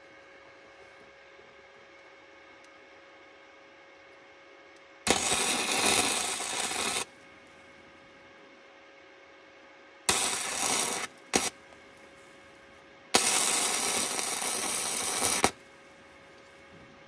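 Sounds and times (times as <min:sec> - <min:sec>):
welder arc crackling: 0:05.1 - 0:07.1, 0:10.1 - 0:12.6, 0:13.2 - 0:16.5.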